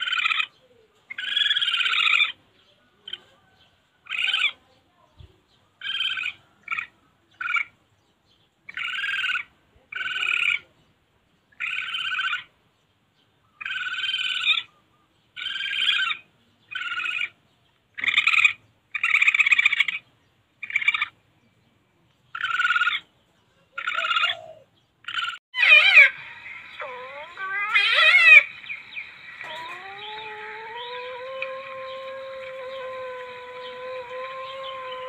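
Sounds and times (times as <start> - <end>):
raspy pulsed civet calls: 0.0 - 2.4, 4.0 - 4.6, 5.8 - 7.8, 8.7 - 10.6, 11.6 - 12.5, 13.6 - 14.7, 15.4 - 17.4, 18.0 - 21.2, 22.3 - 23.1, 23.8 - 35.0
wavering civet yowl: 0.0 - 2.4, 4.0 - 4.6, 22.3 - 23.1, 23.7 - 35.0.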